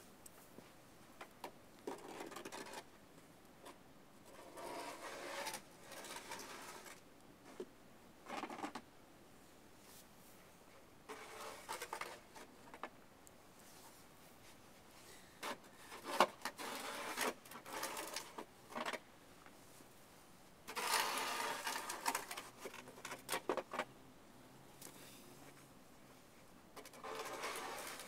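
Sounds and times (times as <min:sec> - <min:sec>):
snow shovel scraping snow: 0:04.5 - 0:07.0, 0:11.1 - 0:12.1, 0:15.8 - 0:18.1, 0:20.7 - 0:22.3, 0:27.0 - 0:28.0.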